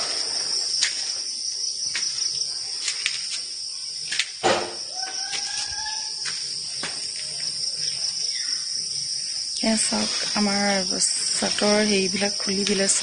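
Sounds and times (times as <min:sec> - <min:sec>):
insects droning: 0:00.0 - 0:13.0
sharp thump: 0:04.4 - 0:04.9.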